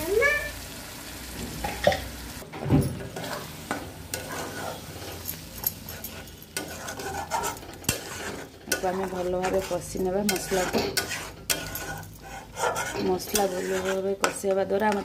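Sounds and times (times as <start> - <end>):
paste sizzling in a pan: 0.0 - 2.4, 3.2 - 14.4
spatula scraping a pan: 3.1 - 15.0.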